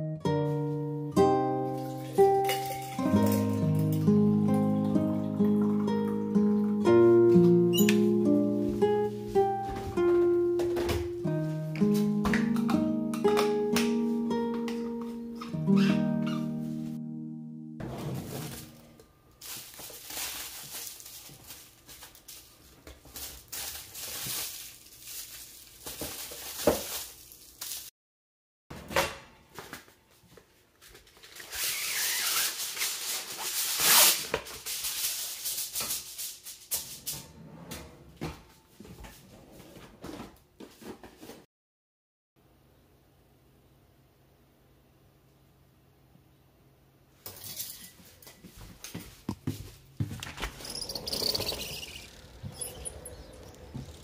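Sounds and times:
cooking foil crinkling: 1.6 - 4.9, 18.1 - 27.9, 30.1 - 37.0
kitchen clicks and knocks: 47.2 - 48.3.

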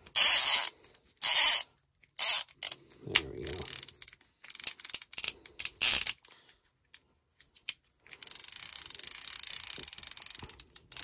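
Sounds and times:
fishing reel clicks and rattles: 0.1 - 2.8, 3.5 - 6.3, 8.1 - 11.0
fishing reel ratcheting whir: 0.1 - 2.8, 3.4 - 6.3, 8.2 - 11.0.

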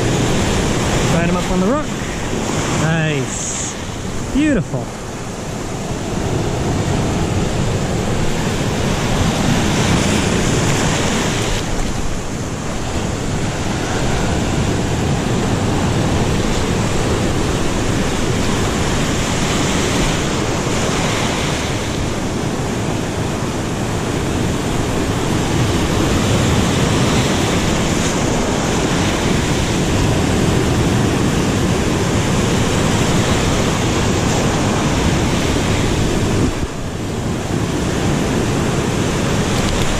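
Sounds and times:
ocean surf breaking on rocks: 0.0 - 39.9.

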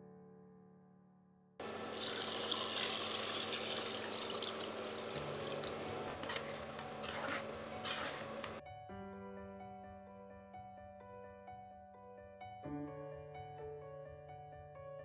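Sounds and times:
water pouring into a pot: 1.9 - 6.1
ladle scraping and knocking: 6.0 - 8.6.

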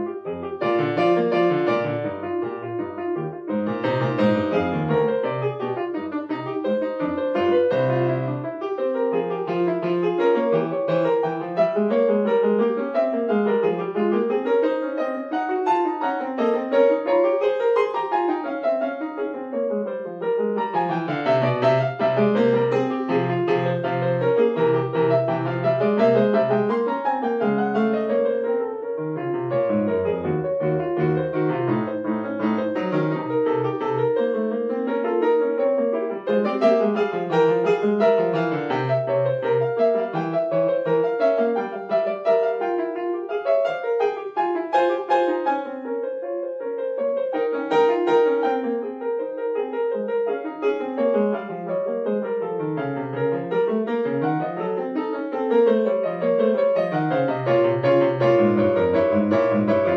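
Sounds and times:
solo piano playing: 0.0 - 59.9.

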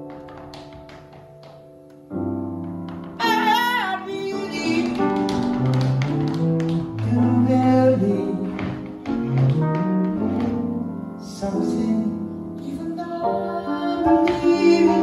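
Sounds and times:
tap-dance steps clicking: 0.0 - 10.9, 14.1 - 15.0
jazz piano chords: 0.0 - 15.0.

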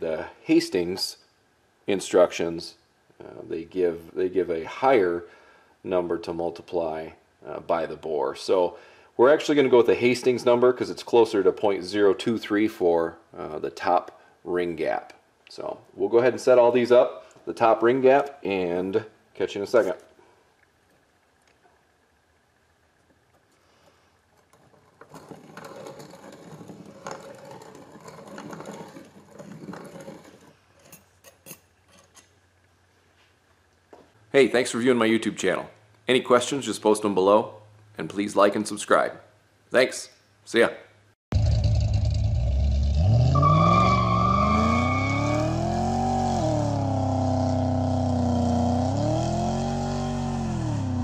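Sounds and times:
car engine revving: 41.4 - 51.0
tyre squeal: 43.0 - 47.0.

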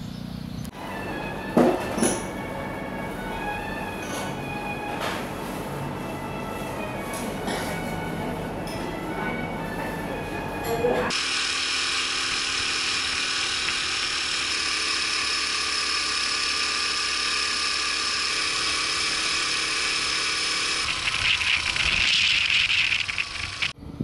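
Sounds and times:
small motorcycle engine running: 11.1 - 23.8.

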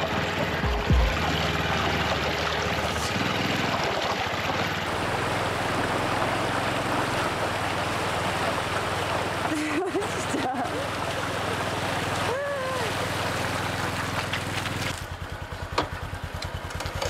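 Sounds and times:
river water rushing: 0.0 - 15.2
motorcycle engine running: 0.0 - 17.0.

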